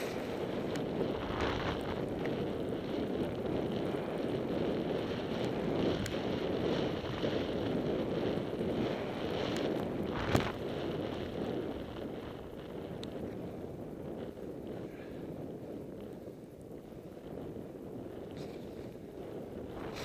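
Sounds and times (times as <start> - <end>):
skis hissing through snow: 0.0 - 3.1, 18.3 - 20.0
wind on microphone: 0.0 - 20.0.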